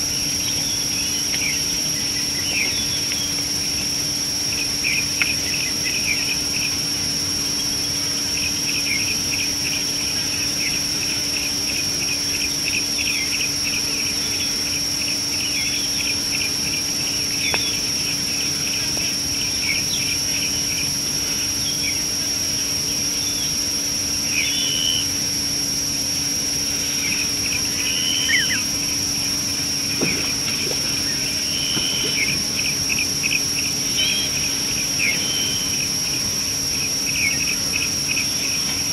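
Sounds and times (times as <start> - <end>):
insects droning: 0.0 - 38.9
low steady hum: 0.0 - 38.9
bird whistled calls: 24.3 - 25.1, 26.9 - 28.7, 30.9 - 32.4, 33.9 - 35.8
birds chirping: 26.7 - 36.1.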